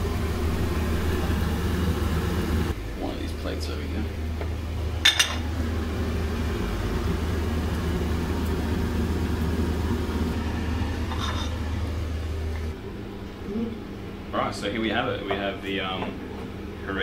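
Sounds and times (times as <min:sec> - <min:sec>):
steady low rumble: 0:00.0 - 0:14.4
patties frying in oil: 0:04.9 - 0:12.4.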